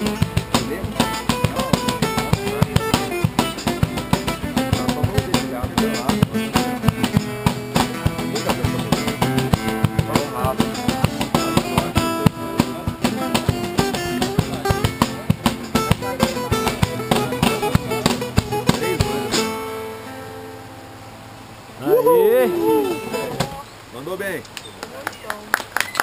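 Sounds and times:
acoustic guitar strummed fast: 0.0 - 20.8, 22.7 - 23.6.

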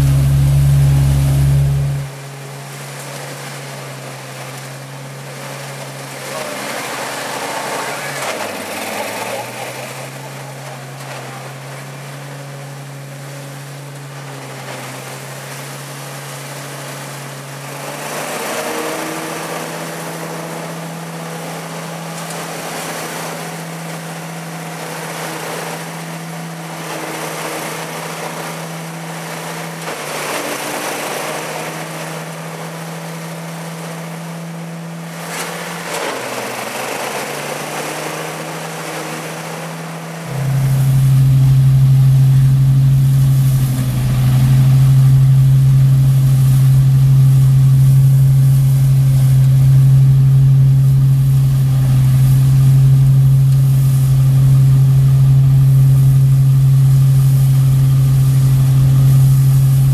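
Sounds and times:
engine running steadily: 0.0 - 59.9
dry leaves sucked in: 40.2 - 59.9.

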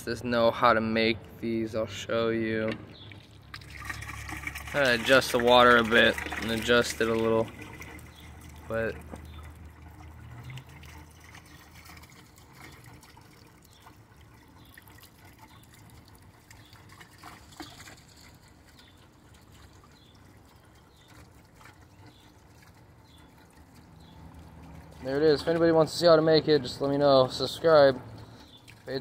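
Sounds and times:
fountain water splashing: 3.2 - 29.0.

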